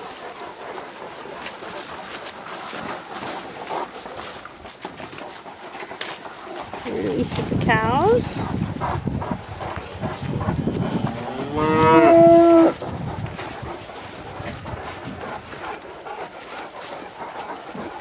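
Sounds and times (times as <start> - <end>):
cow mooing: 10.7 - 12.8.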